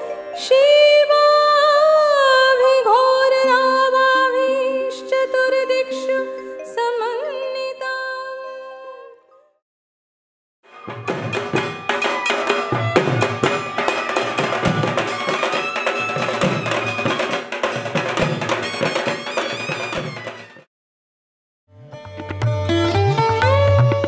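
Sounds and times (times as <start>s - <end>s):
drums beaten with sticks: 10.7s - 20.6s.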